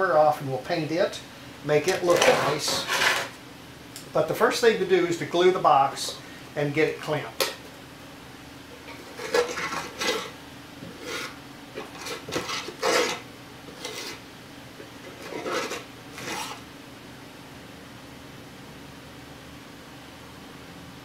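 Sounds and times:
tool scraping wooden cabinet: 1.9 - 3.4, 8.9 - 14.2, 15.1 - 16.6.

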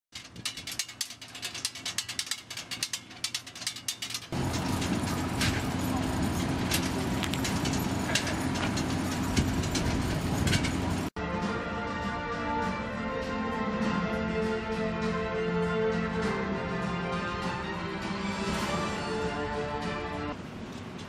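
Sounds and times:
low hum: 4.4 - 11.2.

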